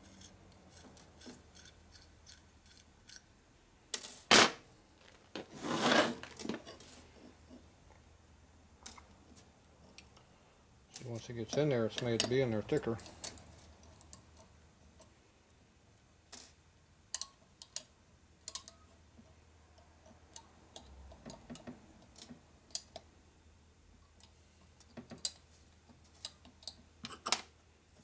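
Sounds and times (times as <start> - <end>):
small metal parts clicking: 16.3 - 18.8.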